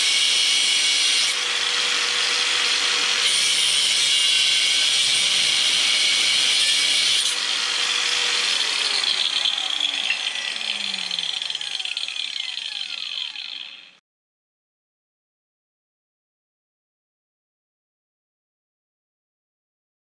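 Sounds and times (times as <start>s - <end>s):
angle grinder grinding steel: 0.0s - 14.0s
grinder disc spinning down: 5.5s - 14.0s.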